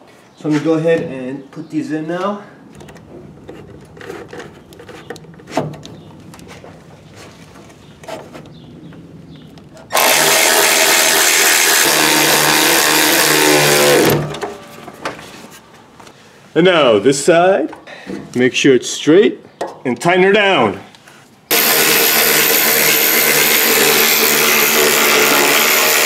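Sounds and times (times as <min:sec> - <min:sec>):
cordless drill driving screw: 0:09.9 - 0:14.5, 0:21.5 - 0:26.0.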